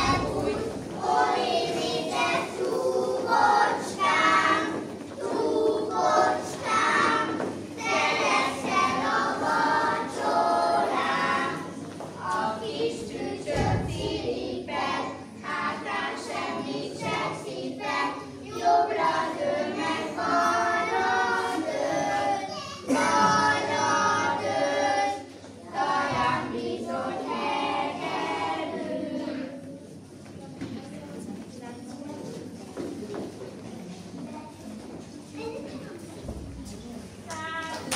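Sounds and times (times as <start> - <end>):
children singing: 0.0 - 29.8.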